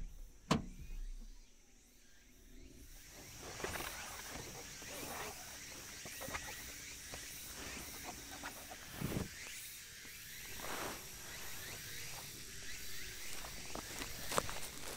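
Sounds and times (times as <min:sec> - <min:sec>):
dull thump: 0:00.0 - 0:01.4
high insect drone: 0:00.0 - 0:14.9.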